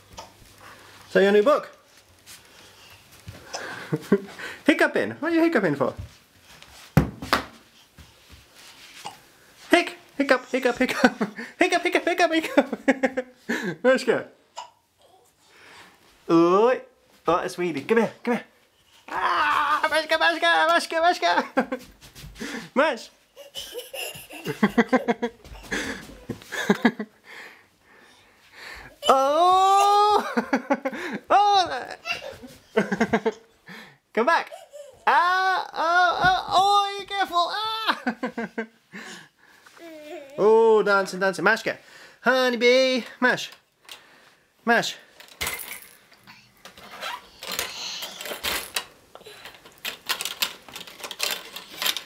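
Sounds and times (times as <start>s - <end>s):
toddler breathing: 2.3s - 4.6s, 25.4s - 29.1s, 46.1s - 46.6s, 47.2s - 48.3s
toddler giggling: 23.4s - 27.0s, 31.8s - 33.5s
plastic toy clicking and rattling: 46.8s - 52.0s.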